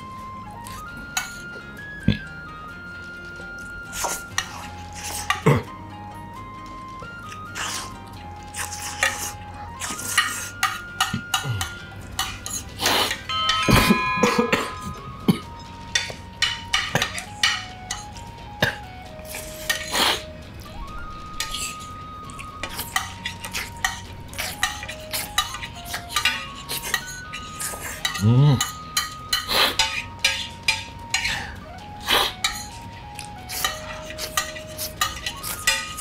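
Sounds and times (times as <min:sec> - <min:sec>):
spoon scraping a ceramic plate: 0:08.6 - 0:13.4.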